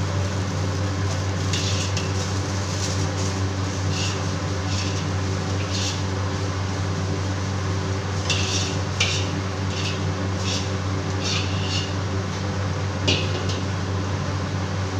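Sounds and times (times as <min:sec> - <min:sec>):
mechanical hum: 0:00.0 - 0:14.9
metal utensil scraping a wok: 0:01.4 - 0:06.2, 0:08.2 - 0:12.1, 0:13.1 - 0:13.7.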